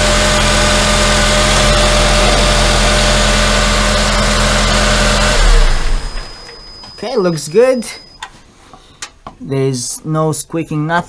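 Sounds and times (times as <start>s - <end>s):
car engine idling: 0.0s - 6.6s.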